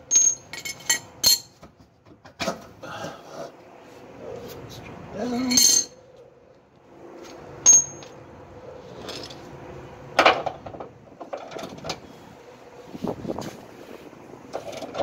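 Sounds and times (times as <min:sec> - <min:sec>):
metal hardware clinking: 0:07.7 - 0:08.2.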